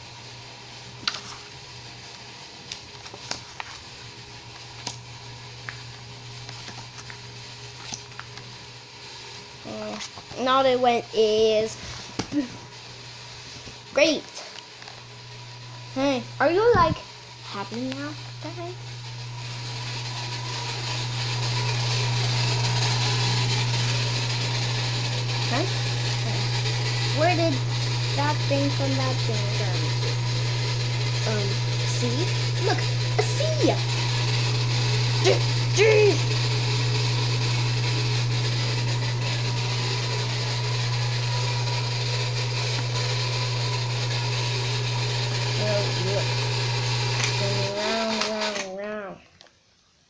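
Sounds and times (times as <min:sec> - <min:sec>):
motor hum with airy rushing: 0:03.0 - 0:48.3.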